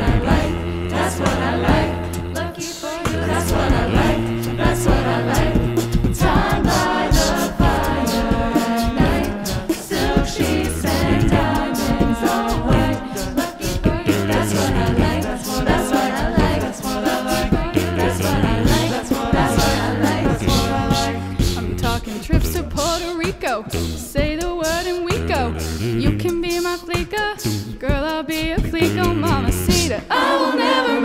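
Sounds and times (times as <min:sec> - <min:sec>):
a cappella group singing: 0:00.0 - 0:31.0.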